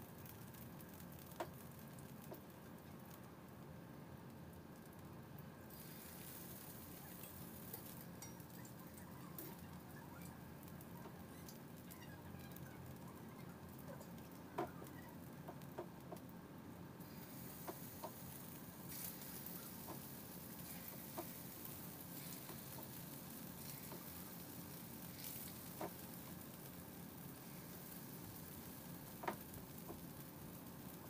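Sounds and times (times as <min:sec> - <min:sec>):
food sizzling in a pot: 0:05.6 - 0:15.7, 0:17.0 - 0:31.0.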